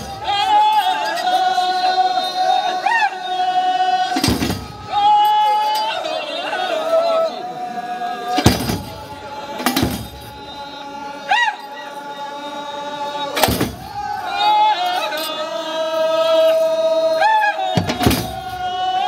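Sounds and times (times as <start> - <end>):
men chorus chanting: 0.0 - 19.0
frame drum strikes: 4.2 - 4.9, 8.4 - 10.3, 13.4 - 14.0, 17.8 - 18.5.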